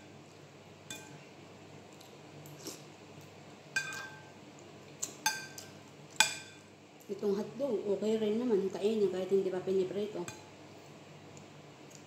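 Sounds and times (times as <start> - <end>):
spoon clinking on ceramic bowl: 3.8 - 4.3.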